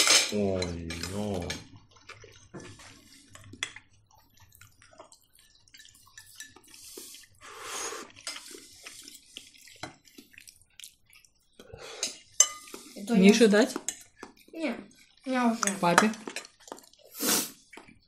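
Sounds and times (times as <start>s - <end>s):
cutlery tapping on plates: 0.0s - 1.6s, 15.6s - 16.5s
chewing mouth sounds: 1.4s - 18.0s.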